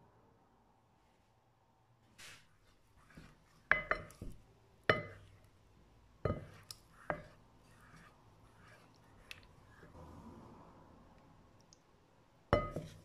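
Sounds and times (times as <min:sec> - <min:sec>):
soft rustle: 0:02.0 - 0:04.5, 0:06.3 - 0:10.0
spoon clinking glass bowl: 0:03.7 - 0:04.3, 0:04.9 - 0:05.4, 0:12.6 - 0:13.0.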